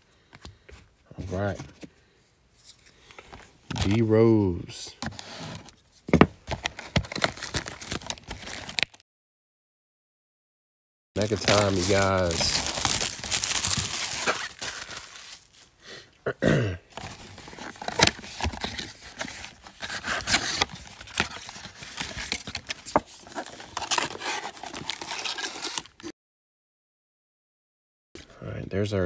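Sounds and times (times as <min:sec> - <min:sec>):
foil card packs rustling: 0:02.6 - 0:04.2, 0:06.4 - 0:09.0, 0:11.2 - 0:15.8, 0:16.9 - 0:26.1
cellophane crinkling: 0:06.6 - 0:09.0, 0:11.2 - 0:15.7, 0:17.0 - 0:26.1.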